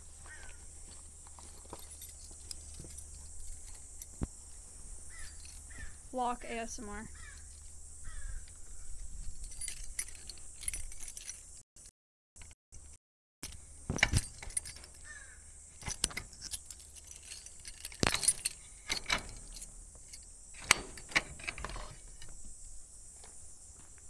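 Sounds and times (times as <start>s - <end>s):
padlock and latch rattling: 1.4s - 4.2s, 5.1s - 5.9s, 9.0s - 12.6s, 13.4s - 22.4s.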